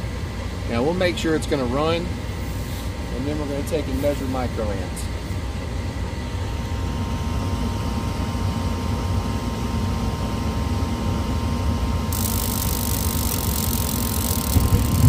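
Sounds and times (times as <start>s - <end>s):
inducer motor humming: 12.1s - 15.0s
steady hiss: 12.1s - 15.0s.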